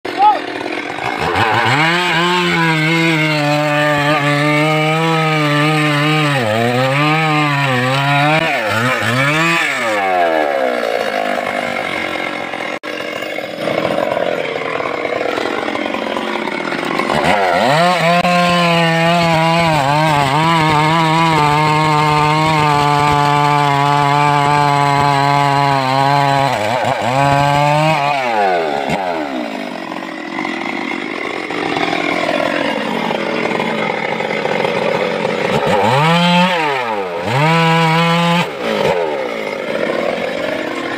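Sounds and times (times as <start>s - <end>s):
chainsaw cutting log: 0.0s - 40.9s.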